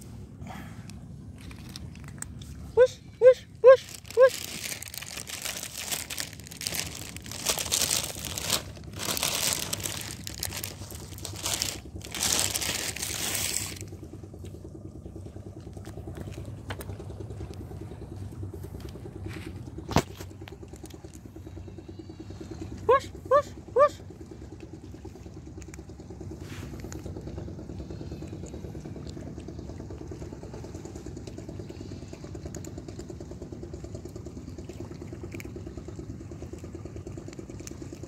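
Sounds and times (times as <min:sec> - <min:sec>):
low steady hum: 0:00.0 - 0:38.0
plastic bag crinkling: 0:03.8 - 0:14.0.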